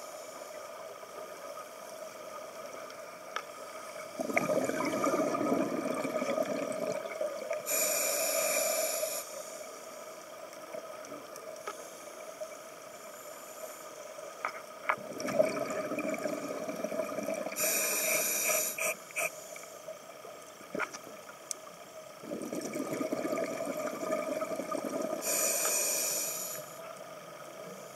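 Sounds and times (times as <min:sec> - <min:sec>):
exhaled bubbles rushing: 0:04.2 - 0:07.4, 0:15.0 - 0:17.6, 0:22.2 - 0:25.2
scuba regulator inhale hiss: 0:07.6 - 0:10.0, 0:17.6 - 0:19.8, 0:25.2 - 0:26.8.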